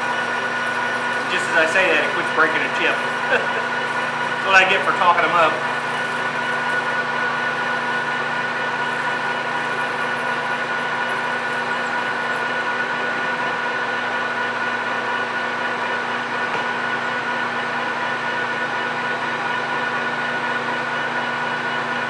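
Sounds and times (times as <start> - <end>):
lathe cutting aluminum bar: 0.0 - 17.4
lathe humming with gear whine: 0.0 - 22.0.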